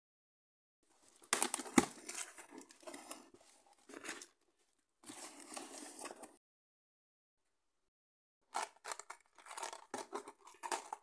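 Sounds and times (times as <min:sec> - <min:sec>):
cardboard and packing rustling: 0:00.9 - 0:04.4, 0:05.0 - 0:06.4.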